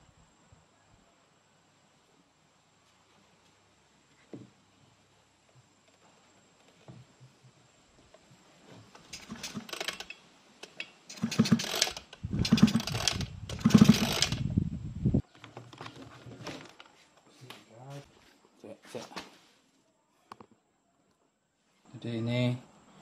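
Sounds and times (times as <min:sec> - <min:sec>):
engine rattling: 0:09.0 - 0:10.0, 0:11.1 - 0:14.4
recoil starter pulls: 0:09.0 - 0:14.5.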